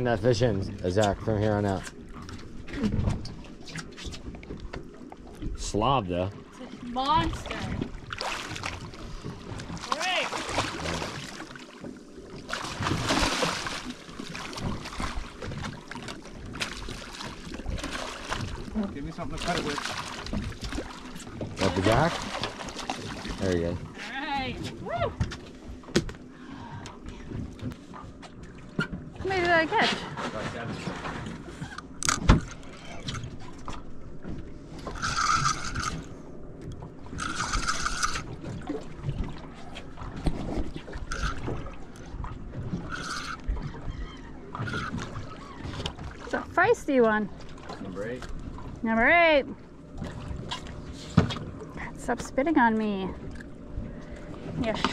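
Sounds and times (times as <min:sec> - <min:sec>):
water splashing: 0:01.0 - 0:24.9, 0:28.4 - 0:54.9
fish thrashing at the surface: 0:07.4 - 0:11.8, 0:12.5 - 0:23.5
fishing reel gears whirring: 0:34.7 - 0:36.3, 0:37.0 - 0:38.5, 0:41.0 - 0:42.0, 0:42.6 - 0:46.0.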